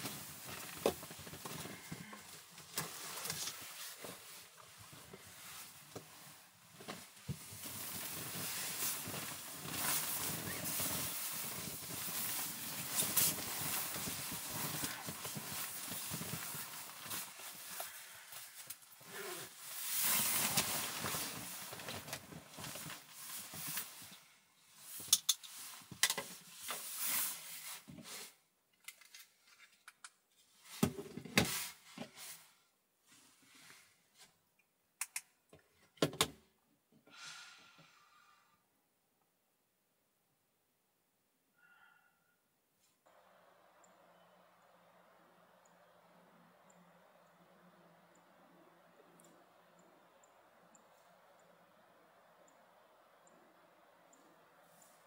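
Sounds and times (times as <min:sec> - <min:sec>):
sleeping bag rustling: 0:00.0 - 0:24.2.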